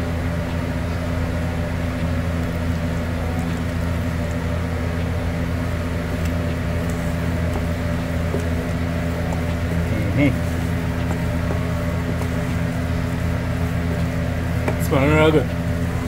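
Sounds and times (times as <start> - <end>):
low mechanical hum: 0.0 - 16.0
spoon mashing potatoes in pot: 6.3 - 15.9.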